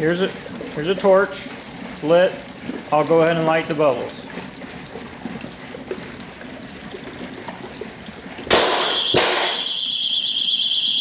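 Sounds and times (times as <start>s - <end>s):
gas bubbling through water: 0.0s - 9.9s
loud explosive bang: 8.5s - 9.7s
sharp crack: 8.5s - 9.7s
high steady alarm tone: 8.8s - 11.0s.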